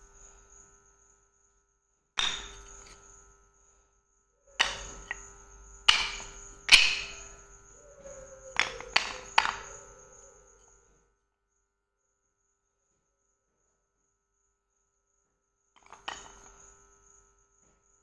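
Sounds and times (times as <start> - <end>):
slate blocks clacking together: 2.2 - 3.0, 4.6 - 7.4, 8.6 - 9.7, 15.8 - 16.6.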